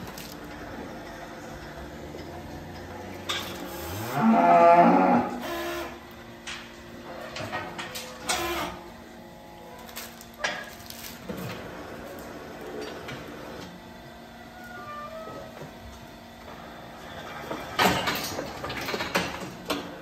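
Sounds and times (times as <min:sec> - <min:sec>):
cow mooing: 0:03.9 - 0:05.9.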